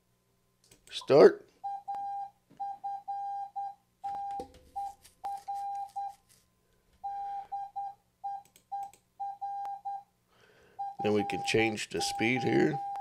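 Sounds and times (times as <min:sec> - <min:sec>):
morse code tone: 0:01.7 - 0:06.2, 0:07.0 - 0:10.1, 0:10.8 - 0:13.0.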